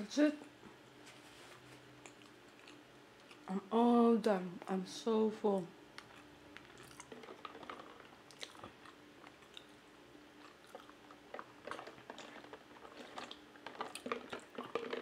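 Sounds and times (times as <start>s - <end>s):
swallowing: 6.0s - 9.8s, 10.4s - 15.0s.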